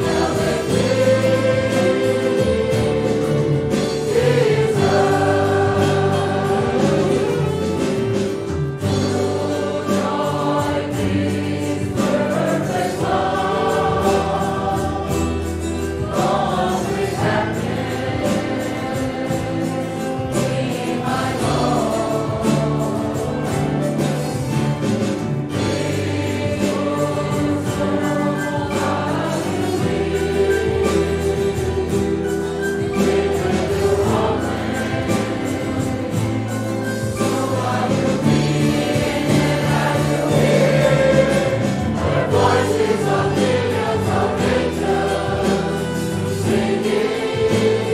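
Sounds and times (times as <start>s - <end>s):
congregation singing a hymn: 0.0s - 47.9s
musical accompaniment: 0.0s - 47.9s.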